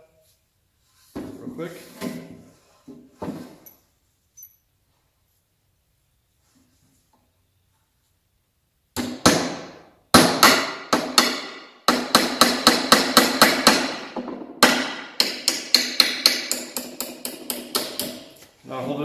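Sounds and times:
hammer driving nail into wood: 9.0 - 18.4.

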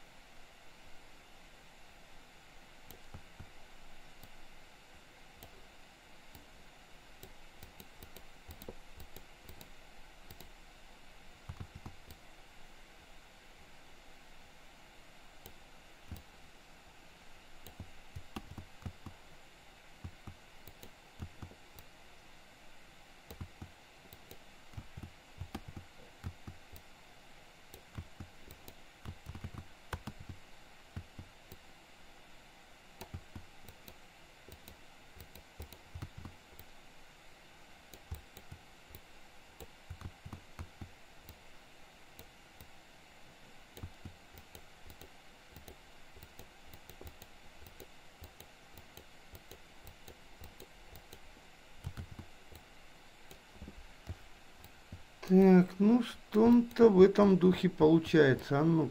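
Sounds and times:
steady low hiss: 0.0 - 58.9
computer keyboard and mouse clicks: 2.9 - 3.5, 5.4 - 5.7, 7.2 - 10.6, 11.4 - 12.2, 15.4 - 16.3, 17.6 - 19.2, 20.0 - 21.9, 23.3 - 26.9, 27.7 - 31.6, 33.0 - 36.8, 37.9 - 41.4, 43.7 - 52.7.

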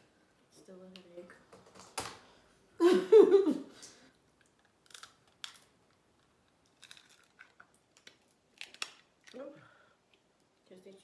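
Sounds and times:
crawfish shells cracking: 4.3 - 9.4.

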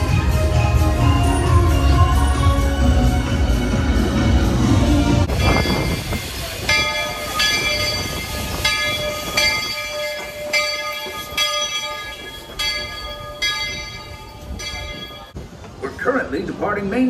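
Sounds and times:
locomotive bell ringing: 5.3 - 15.4.

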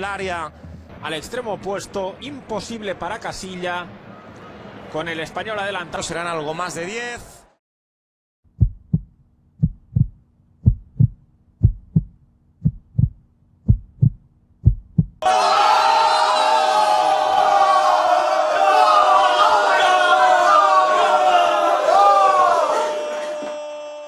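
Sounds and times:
heartbeat thumps: 8.5 - 15.2
football fans shouting and cheering: 15.2 - 24.0.

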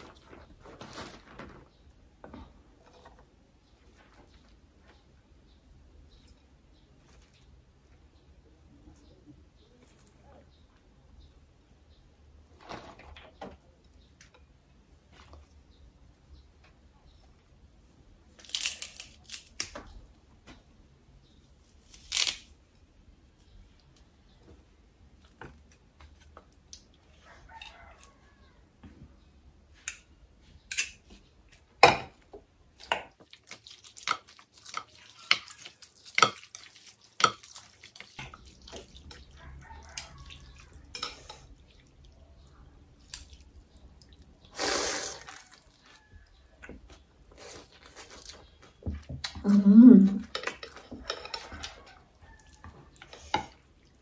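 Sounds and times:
greens snapping: 21.9 - 22.5
soup being stirred: 32.9 - 42.1
slurping noodles: 44.5 - 45.6.

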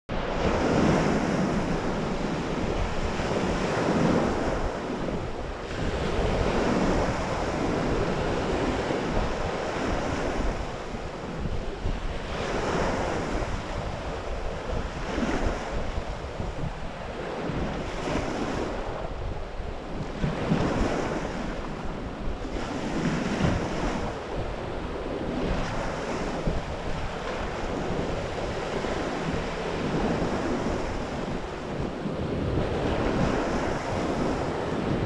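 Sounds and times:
wind rumble on microphone: 0.1 - 35.0
waves washing on pebbly shore: 0.3 - 19.1.

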